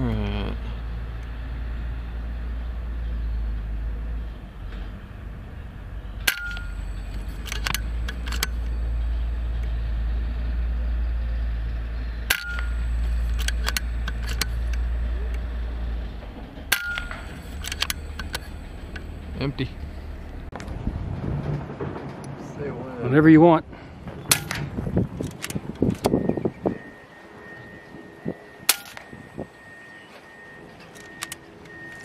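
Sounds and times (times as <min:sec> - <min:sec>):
metallic ring: 0:06.2 - 0:09.5, 0:12.3 - 0:15.8, 0:16.7 - 0:20.4, 0:28.7 - 0:29.7
rifle action clicks: 0:06.3 - 0:08.8, 0:12.3 - 0:15.4, 0:16.7 - 0:19.1
low rumble: 0:12.6 - 0:26.6
air rifle shots: 0:16.7 - 0:19.2, 0:24.2 - 0:24.8.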